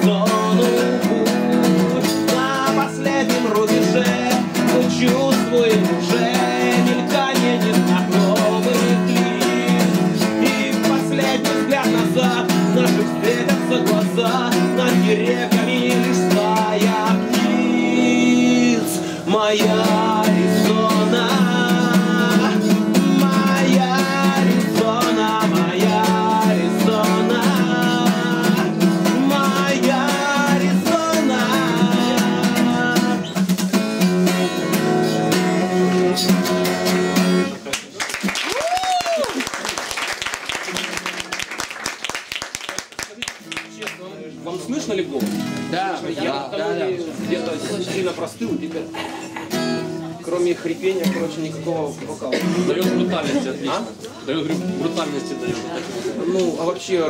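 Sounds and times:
man singing: 0.0 - 37.5
acoustic guitar strumming: 0.0 - 37.7, 43.3 - 57.0.

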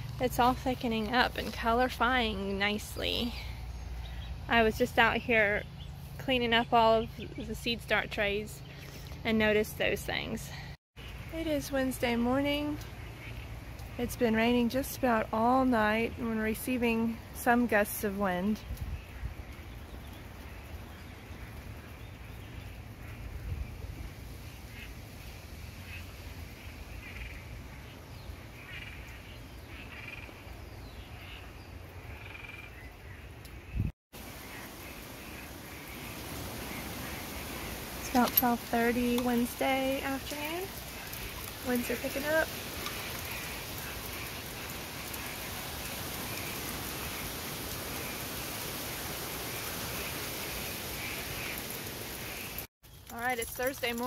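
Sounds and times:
wind blowing through trees: 0.0 - 54.0
rain rushing: 10.6 - 54.0
frogs croaking: 11.0 - 14.8, 24.3 - 52.7
wind rumble on microphone: 18.6 - 28.5, 33.4 - 34.5.

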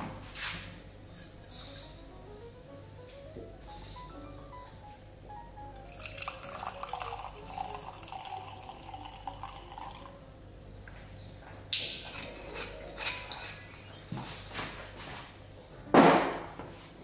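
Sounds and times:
quiet background music: 0.0 - 17.0
juices bubbling in pot: 5.7 - 10.6.

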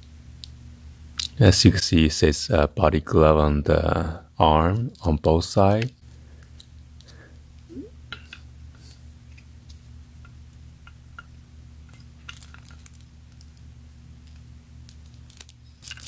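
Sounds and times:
steady low hum: 0.0 - 12.2.

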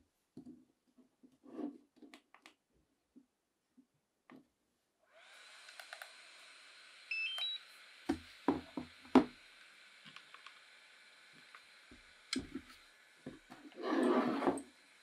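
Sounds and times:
faint hiss: 5.0 - 15.0.

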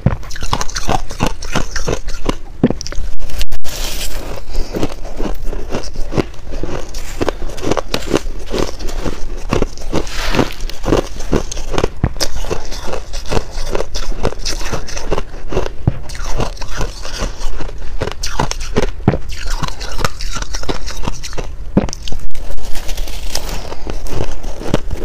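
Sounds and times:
ice crunching being chewed: 0.2 - 25.0.

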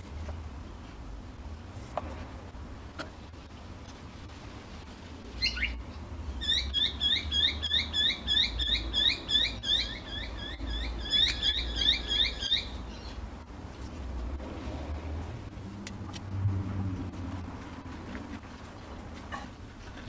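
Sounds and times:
small bird chirping: 6.4 - 13.2.

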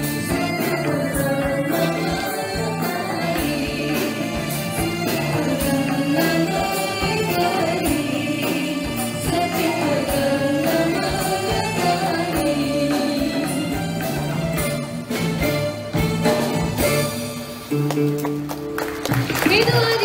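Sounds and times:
person singing: 0.0 - 14.6
live band playing pop song: 0.0 - 20.0.

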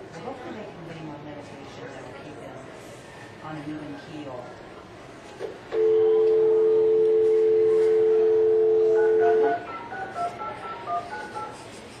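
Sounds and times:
touch-tone beeps: 5.8 - 11.5.

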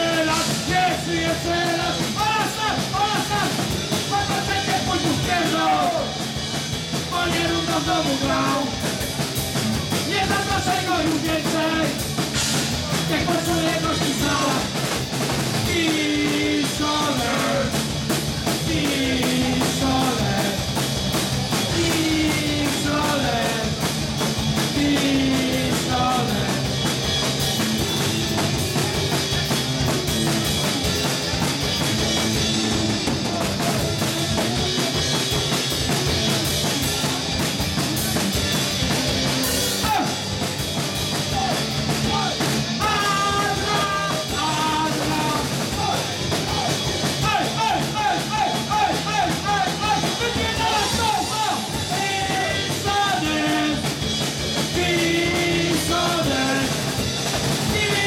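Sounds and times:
punk rock band playing: 0.0 - 58.0
person singing: 15.6 - 17.8, 18.6 - 20.8, 21.7 - 23.8, 24.6 - 26.8, 41.2 - 54.0, 54.6 - 56.9, 57.7 - 58.0.

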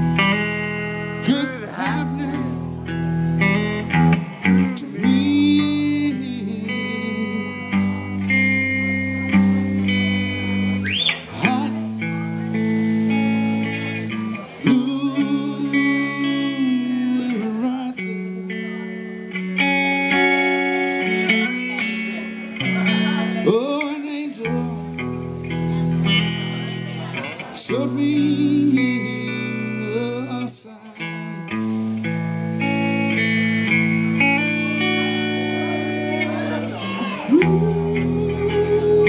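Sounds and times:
bass guitar: 0.0 - 39.0
lead vocal singing: 1.2 - 2.7, 4.7 - 7.9, 11.3 - 12.1, 14.4 - 19.0, 23.2 - 25.0, 27.3 - 31.6, 36.8 - 39.0
electric guitar bent notes: 31.2 - 39.0.

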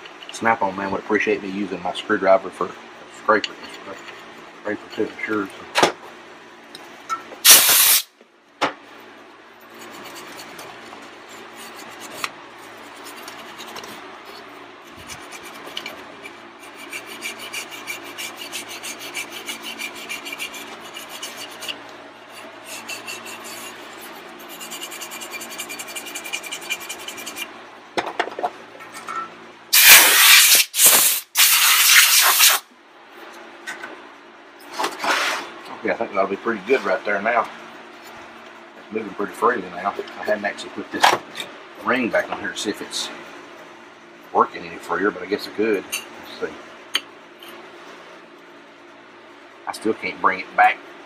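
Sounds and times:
compressed air blasts: 7.4 - 8.1, 29.7 - 32.6
screwdriver scraping metal: 14.9 - 21.8.

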